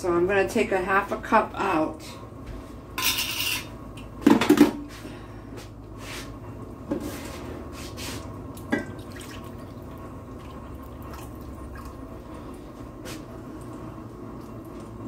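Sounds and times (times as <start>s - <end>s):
liquid pouring and splashing: 8.6s - 12.6s.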